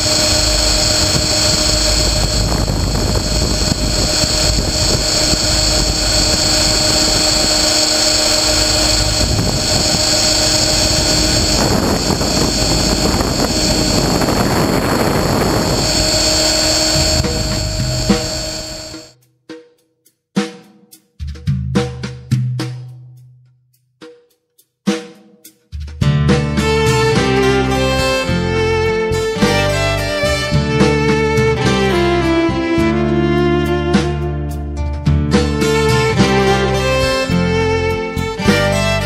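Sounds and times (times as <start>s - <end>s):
helicopter motor whine: 0.0s - 19.1s, 29.1s - 31.1s
rotor and wind rush: 0.0s - 19.1s, 26.8s - 32.4s.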